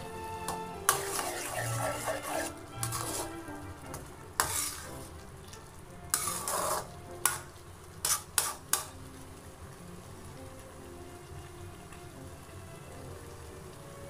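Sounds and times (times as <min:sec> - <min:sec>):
food sizzling: 0:00.0 - 0:14.0
metal spatula scraping pan: 0:00.5 - 0:05.2, 0:06.1 - 0:09.0.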